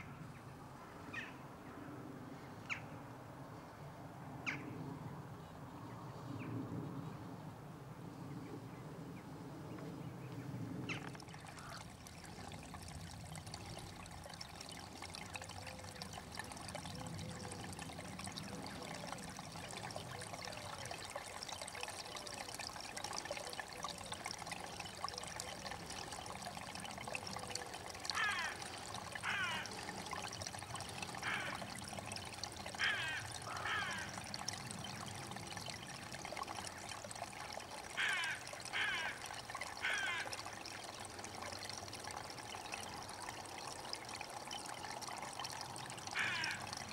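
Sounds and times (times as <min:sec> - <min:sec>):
trickle of running water: 0:09.7 - 0:46.9.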